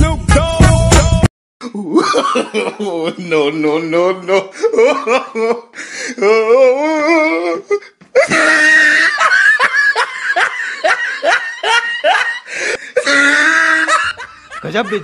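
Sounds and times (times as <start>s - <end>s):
hearty laughter: 1.7s - 3.4s, 8.2s - 15.0s
wavering rising laugh: 8.2s - 15.0s.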